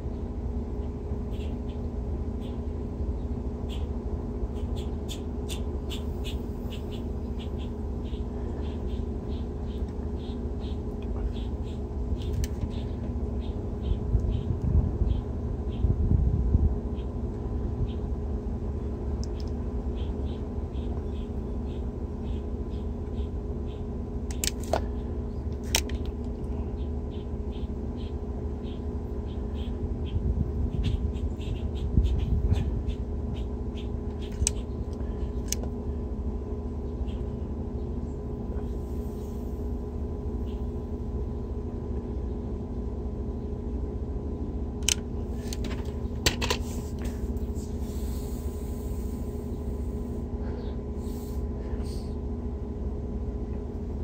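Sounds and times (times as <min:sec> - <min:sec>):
steady electrical hum: 0:00.0 - 0:54.0
sharp clicks: 0:44.8 - 0:45.7.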